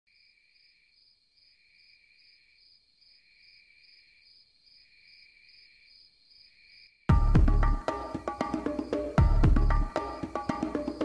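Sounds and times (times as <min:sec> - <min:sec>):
insects chirping: 0:00.1 - 0:11.0
low insect trill: 0:07.8 - 0:11.0.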